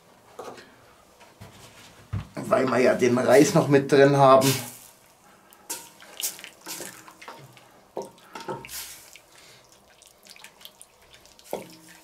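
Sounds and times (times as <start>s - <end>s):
spoon stirring stew in a pot: 10.5s - 12.0s.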